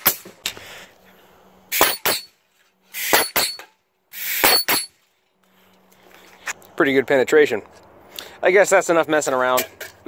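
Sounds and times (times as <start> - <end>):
staple gun air hiss: 4.1 - 4.7.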